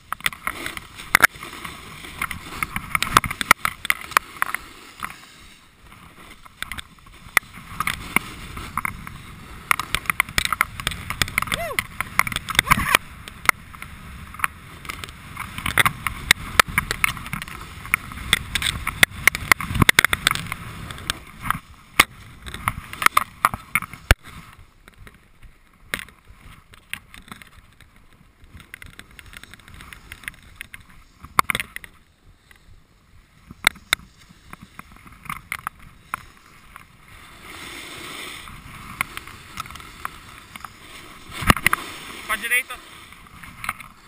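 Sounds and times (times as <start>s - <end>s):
snowboard scraping on snow: 0.0s - 25.6s, 27.4s - 44.0s.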